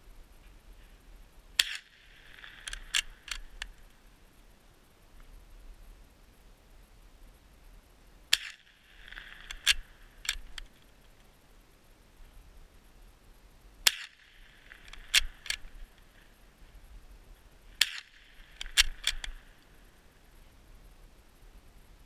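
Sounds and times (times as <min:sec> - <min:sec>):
rifle shots cracking: 0:01.6 - 0:03.6, 0:08.3 - 0:10.7, 0:13.8 - 0:16.2, 0:17.8 - 0:19.8
rifle bolt clicks: 0:01.6 - 0:03.7, 0:08.3 - 0:10.8, 0:13.8 - 0:15.8, 0:17.8 - 0:19.7.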